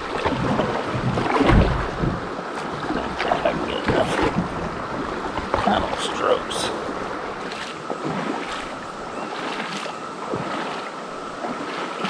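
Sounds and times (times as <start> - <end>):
creek water rippling: 0.0 - 12.0
water splashes: 0.0 - 12.0
cicadas droning: 1.9 - 12.0.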